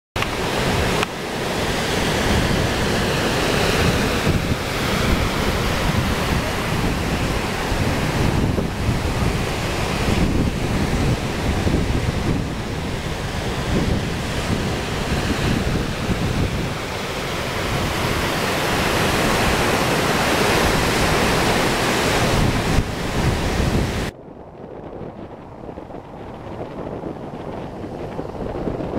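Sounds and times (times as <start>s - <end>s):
ocean surf breaking: 0.2s - 28.9s
wind buffeting microphone: 0.2s - 28.9s.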